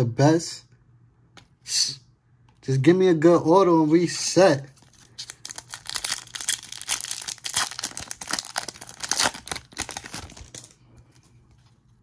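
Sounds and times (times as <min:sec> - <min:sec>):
plastic wrapper crinkling and tearing: 0:04.7 - 0:10.8.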